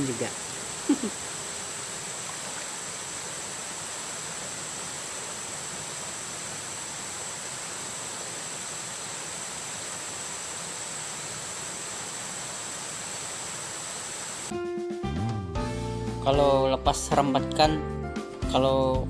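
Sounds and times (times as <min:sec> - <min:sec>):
background hiss: 0:00.0 - 0:14.5
forest insects droning: 0:00.0 - 0:14.5.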